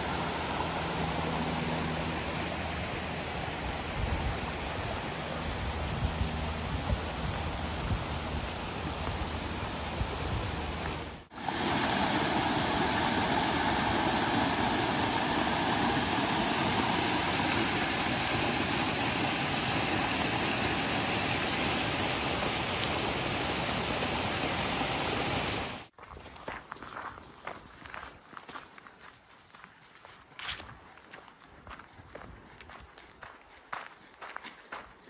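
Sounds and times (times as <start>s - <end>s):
waterfall rushing: 6.3s - 25.9s
footsteps on leaves: 26.0s - 33.6s.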